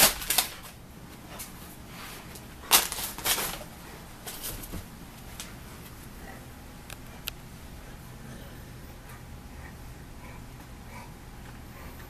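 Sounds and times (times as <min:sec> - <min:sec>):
dog rustling and scuffling: 0:00.1 - 0:06.2.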